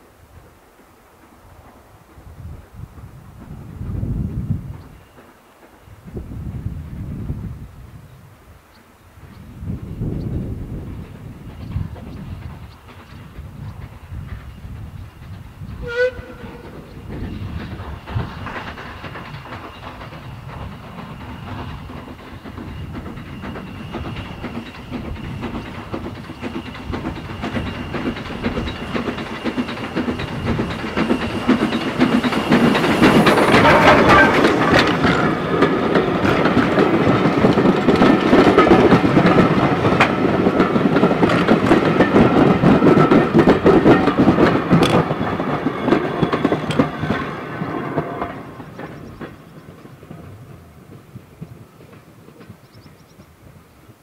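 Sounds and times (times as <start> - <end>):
steam locomotive hauling train: 0.0 - 54.0
carriages clicking over rail joints: 10.2 - 53.2.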